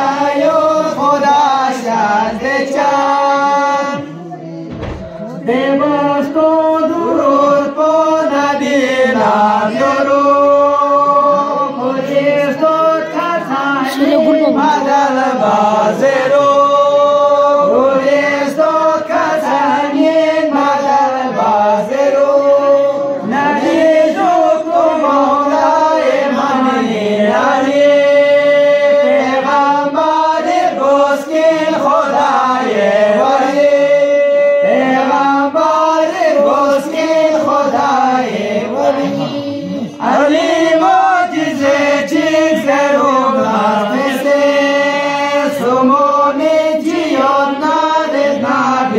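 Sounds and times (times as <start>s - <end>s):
men chanting in unison: 0.0s - 48.9s.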